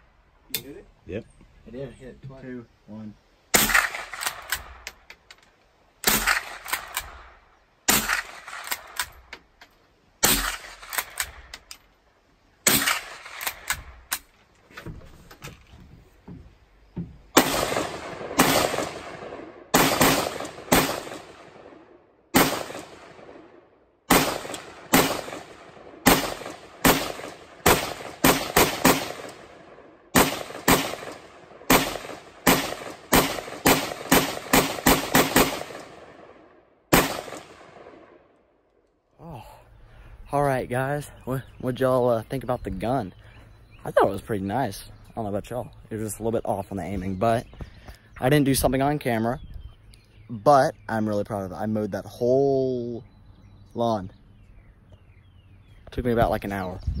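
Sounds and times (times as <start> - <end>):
rifle shots cracking: 3.5 - 5.0, 6.0 - 9.3, 10.2 - 11.7, 12.6 - 14.3, 17.4 - 38.2.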